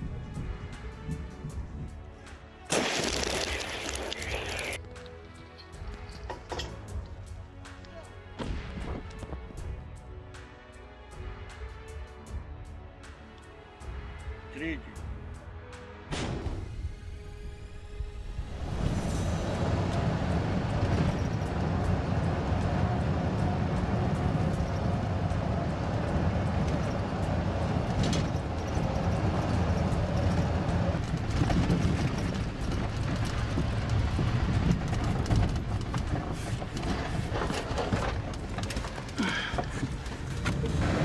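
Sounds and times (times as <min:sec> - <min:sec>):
engine and road rumble: 0:00.0 - 0:14.4, 0:15.1 - 0:41.0
knocks and rattles: 0:26.0 - 0:41.0.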